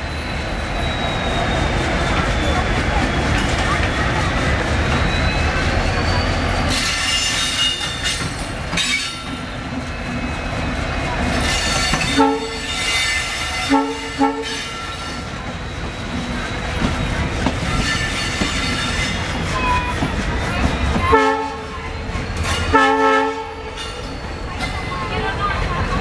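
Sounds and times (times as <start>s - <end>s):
locomotive air horn: 12.1s - 12.6s, 13.6s - 14.7s, 21.1s - 21.7s, 22.7s - 23.7s.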